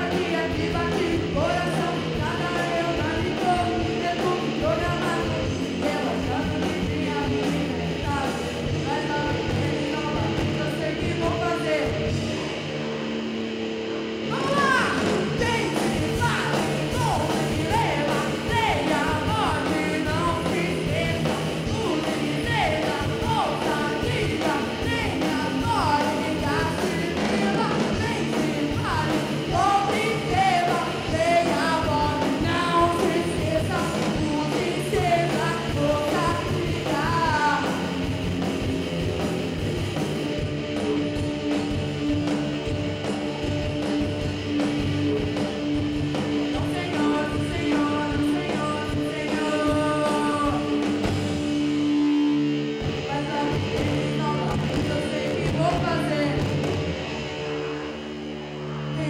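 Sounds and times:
drums: 0.0s - 59.0s
electric guitars: 0.0s - 59.0s
woman singing: 14.5s - 37.8s, 46.5s - 50.7s, 53.1s - 56.4s.

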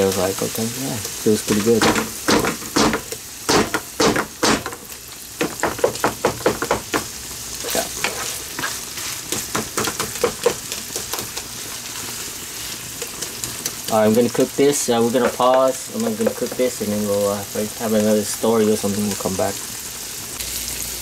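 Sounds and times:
meat sizzling in a frying pan: 0.0s - 21.0s
wooden spatula scraping a pan: 7.6s - 9.5s.

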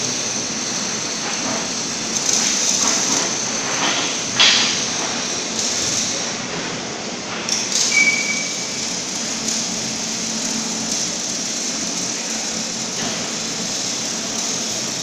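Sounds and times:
machinery hiss and hum: 0.0s - 15.0s
short high beep: 7.9s - 8.6s.

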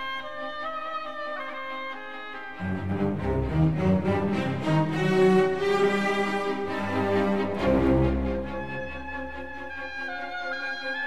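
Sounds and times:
long held instrumental notes: 2.4s - 11.0s.

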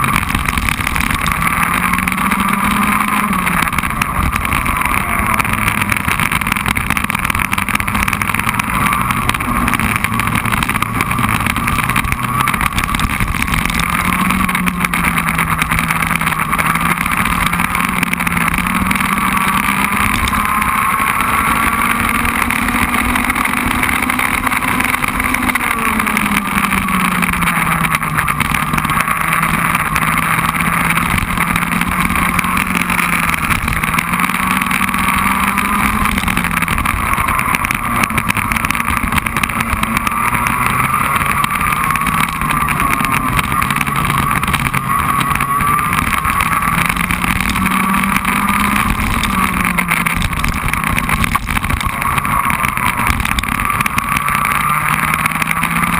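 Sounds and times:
race car engine revving: 0.0s - 55.9s
wind and tyres on wet track: 0.0s - 55.9s.

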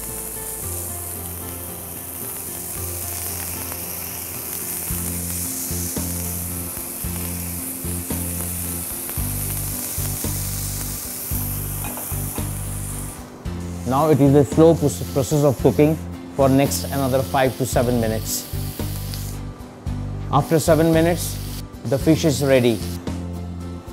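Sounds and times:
fish sizzling in frying pan: 0.0s - 14.2s, 14.8s - 19.5s
low background music: 0.0s - 23.9s.

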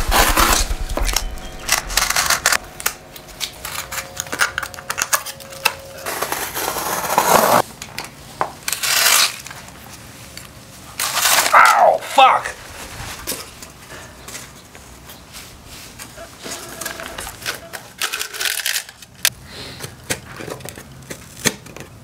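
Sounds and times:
box cutter slicing cardboard: 0.0s - 2.6s, 6.0s - 7.6s.

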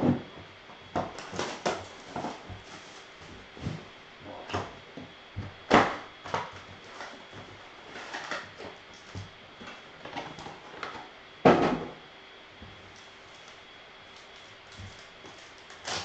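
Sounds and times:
foil packs crinkling: 1.2s - 3.5s, 6.4s - 10.9s, 12.8s - 16.0s.

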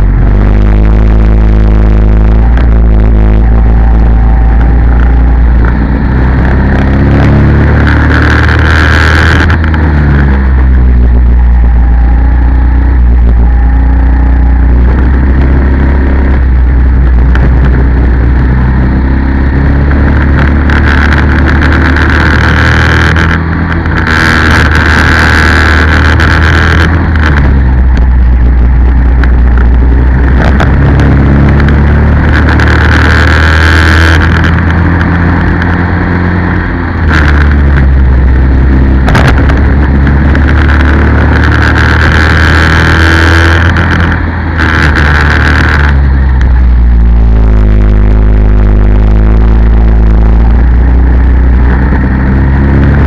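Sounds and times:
kart engine revving: 0.0s - 53.0s
wind rumble on microphone: 0.0s - 53.0s.

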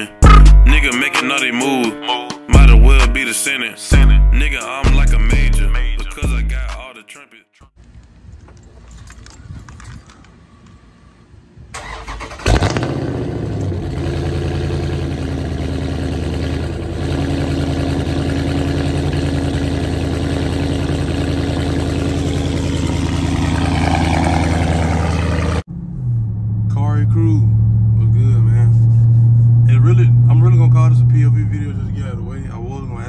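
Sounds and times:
car engine starting and idling: 11.7s - 33.0s.

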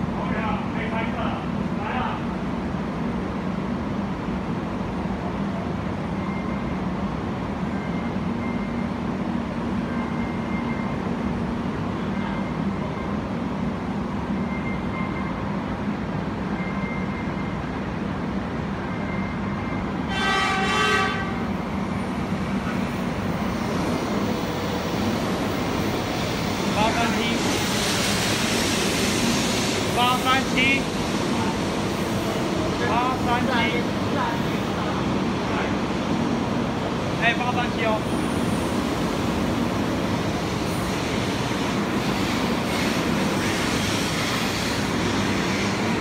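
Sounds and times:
steady train rumble: 0.0s - 46.0s
train sliding along platform: 0.0s - 46.0s
train horn: 20.1s - 21.5s.

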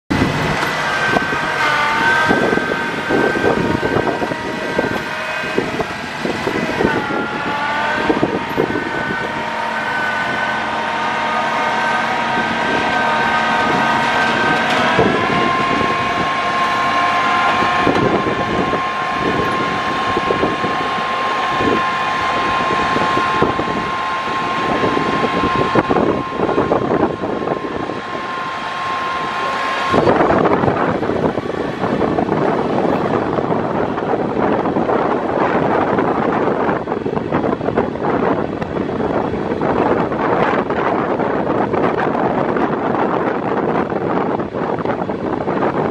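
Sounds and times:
vehicle drivetrain whine: 0.0s - 45.9s.

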